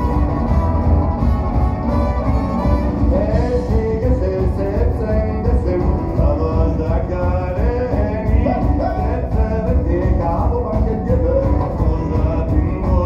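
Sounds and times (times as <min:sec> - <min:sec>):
guitar: 0:00.0 - 0:13.0
heavy bass: 0:00.0 - 0:13.0
person singing: 0:03.0 - 0:13.0.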